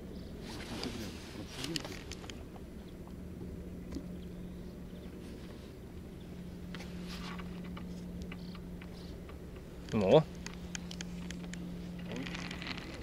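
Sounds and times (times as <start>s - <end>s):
steady low hum: 0.0s - 13.0s
brief rustle: 0.4s - 2.4s
low rumble: 2.2s - 13.0s.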